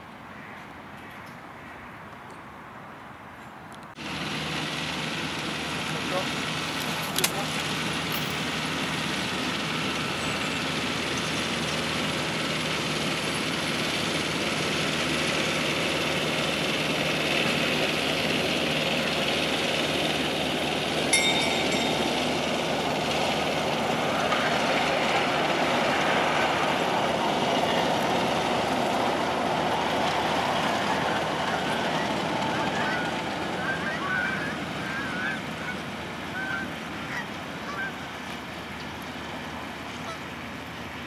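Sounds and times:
miniature train locomotive running: 4.0s - 41.0s
short metallic ring: 21.1s - 22.6s.

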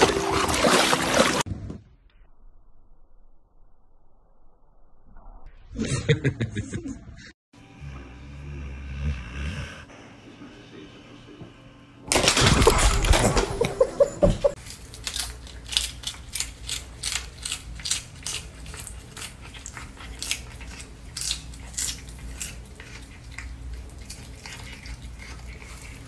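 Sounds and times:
cat chewing lettuce crunches: 14.6s - 26.0s.

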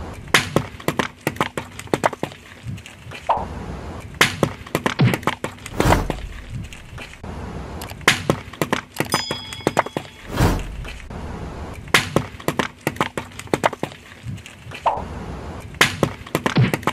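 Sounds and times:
high ringing tone: 9.1s - 11.1s
short rushing swell: 10.2s - 12.0s.

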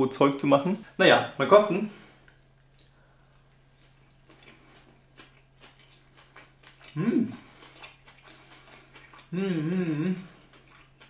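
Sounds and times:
man chewing food: 2.1s - 11.0s
man humming mmm: 7.0s - 7.5s, 9.3s - 10.4s.

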